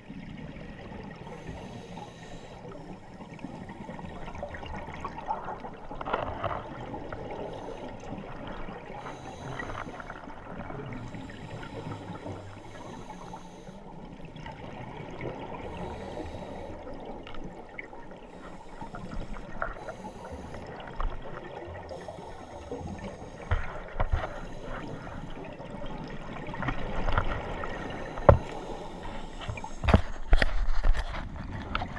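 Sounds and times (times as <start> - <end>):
regulator bubbles gurgling: 0.0 - 31.9
muffled underwater noise: 1.2 - 14.0.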